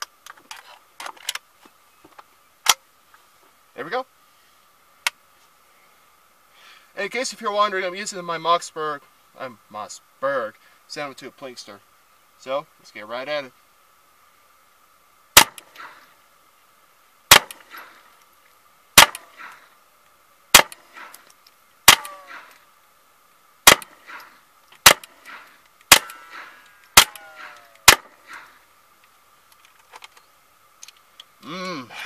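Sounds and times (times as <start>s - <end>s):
rifle shots: 15.4s - 15.7s, 17.3s - 17.7s, 19.0s - 19.3s, 20.5s - 20.9s, 21.9s - 22.4s, 23.6s - 24.0s, 24.8s - 25.2s, 25.9s - 28.2s
faint trailing echoes: 25.0s - 28.7s.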